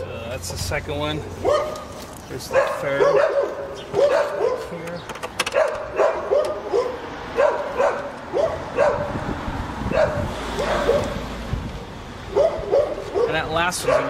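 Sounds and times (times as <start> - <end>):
dog barking: 1.4 - 4.8, 5.5 - 9.2, 9.9 - 11.2, 12.3 - 14.0.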